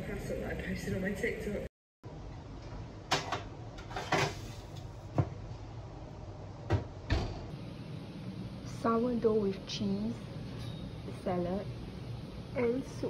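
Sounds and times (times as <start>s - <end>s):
oven door thud: 6.6s - 7.5s.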